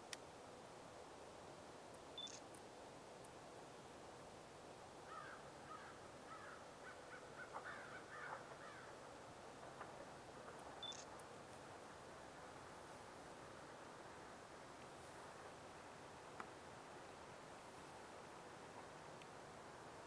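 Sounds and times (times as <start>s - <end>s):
faint bird calls: 2.2s - 2.4s, 5.1s - 9.0s, 10.8s - 11.2s.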